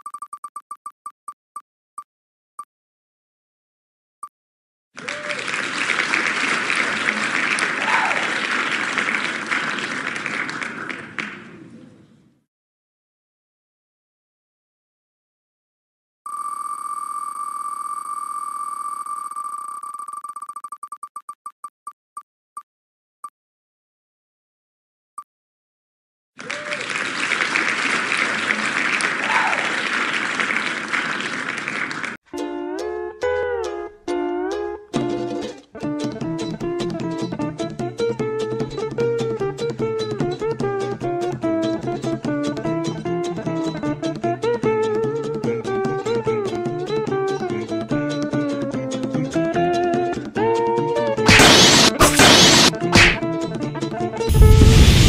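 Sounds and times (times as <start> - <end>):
recorded applause: 5.0 - 11.7, 26.4 - 32.2.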